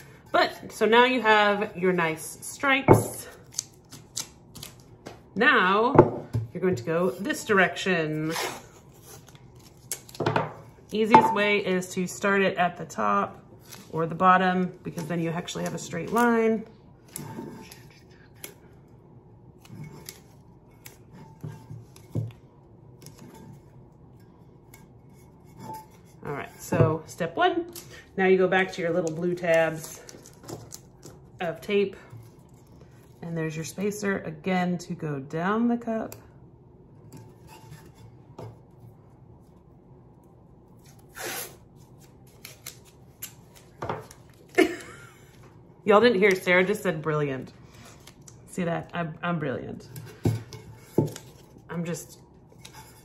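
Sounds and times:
tape crinkling and rubbing: 0:08.2 - 0:10.2, 0:40.6 - 0:44.6.

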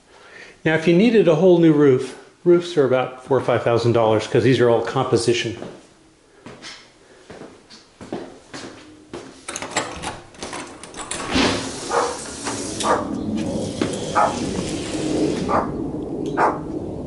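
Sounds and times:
wooden door opening: 0:09.5 - 0:15.7
dog barking: 0:11.9 - 0:12.2, 0:12.8 - 0:13.1, 0:14.2 - 0:14.4, 0:15.5 - 0:15.7, 0:16.4 - 0:16.6.

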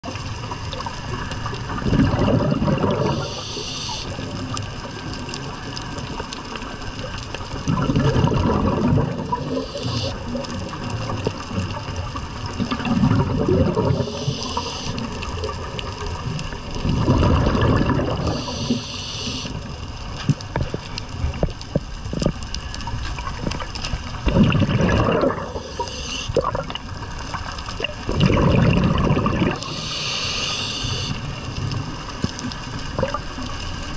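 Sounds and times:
exhaled bubbles rushing: 0:00.0 - 0:30.1, 0:30.9 - 0:33.9
regulator inhale hiss: 0:03.0 - 0:04.2, 0:09.5 - 0:10.4, 0:13.9 - 0:15.2, 0:18.2 - 0:19.7, 0:25.5 - 0:26.4, 0:29.6 - 0:31.4
faint clicks: 0:13.7 - 0:17.0.

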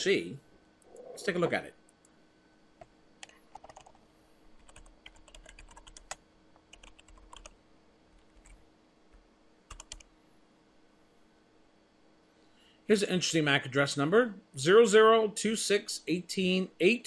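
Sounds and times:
typing on keyboard: 0:03.2 - 0:04.0, 0:04.6 - 0:07.5, 0:08.4 - 0:08.6, 0:09.7 - 0:10.1.

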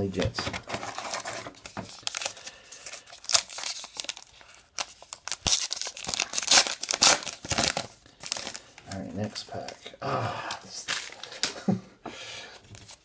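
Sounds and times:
wrapper tearing and crinkling: 0:00.7 - 0:08.7.

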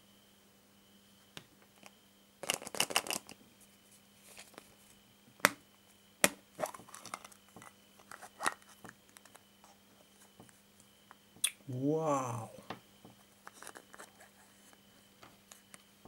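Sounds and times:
plastic capsules rattling: 0:02.4 - 0:03.3.

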